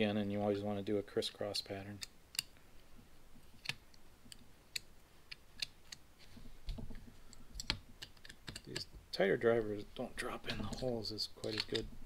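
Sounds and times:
metal clicks of screwdriver: 11.4 - 11.9.

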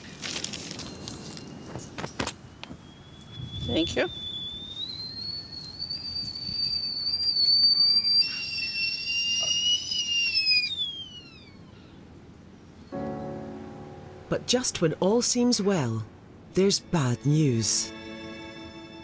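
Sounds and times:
high steady whistle: 2.5 - 11.6
lower tone with hiss: 2.8 - 19.0.

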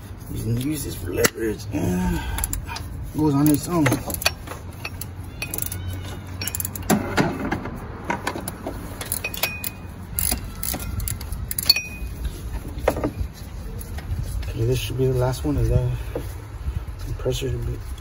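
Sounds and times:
wrench clicking and clinking: 2.4 - 7.0, 8.2 - 12.2
short metallic ring: 11.6 - 12.2.

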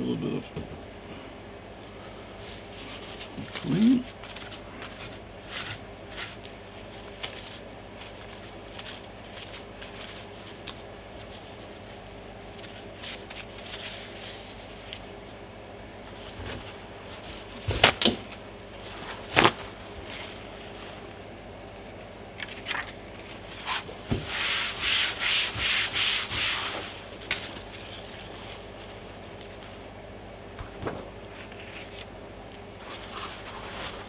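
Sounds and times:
paper towel rubbing on plastic: 23.5 - 29.0.

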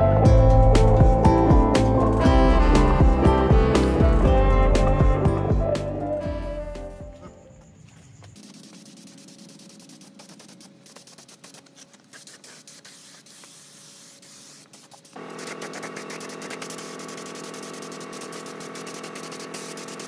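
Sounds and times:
paint spray gun hissing: 8.4 - 20.0.

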